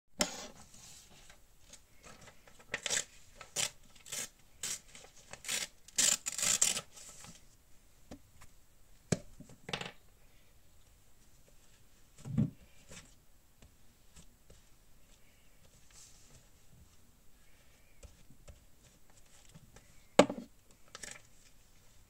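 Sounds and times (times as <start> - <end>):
paper rustling and tearing: 2.7 - 7.4.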